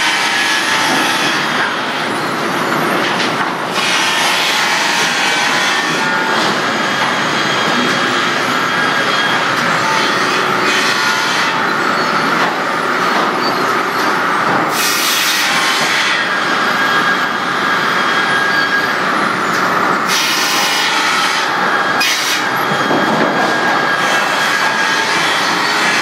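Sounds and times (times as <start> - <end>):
sawmill machinery din: 0.0 - 26.0.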